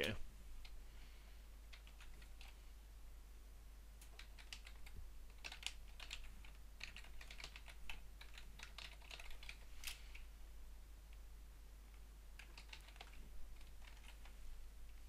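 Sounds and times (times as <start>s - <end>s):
computer keyboard typing: 1.7s - 2.6s, 4.0s - 10.0s, 12.4s - 14.3s.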